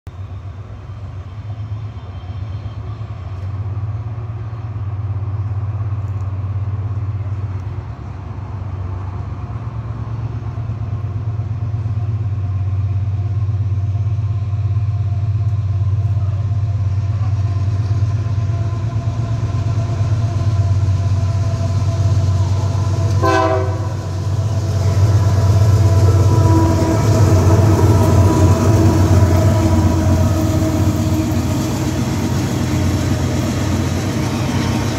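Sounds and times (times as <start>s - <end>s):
locomotive engine rumble: 0.1s - 34.9s
locomotive air horn chord: 21.1s - 31.5s.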